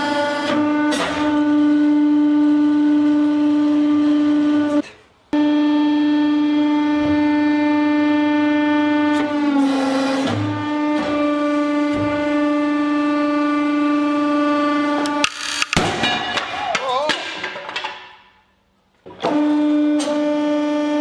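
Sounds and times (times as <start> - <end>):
hydraulic press whine: 0.0 - 15.8, 19.0 - 21.0.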